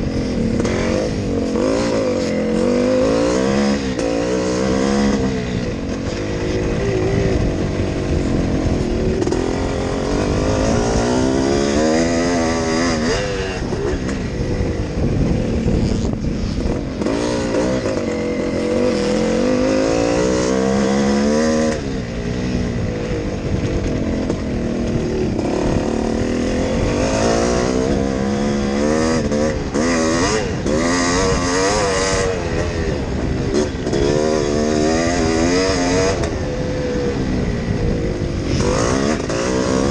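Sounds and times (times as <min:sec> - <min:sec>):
motocross engine revving: 0:00.0 - 0:39.9
wind on microphone: 0:00.0 - 0:39.9.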